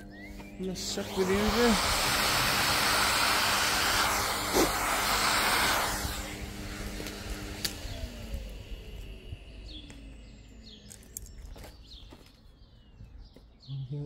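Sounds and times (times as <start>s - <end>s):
vacuum cleaner sucking: 0.0s - 10.8s
motor winding down whine: 0.0s - 12.4s.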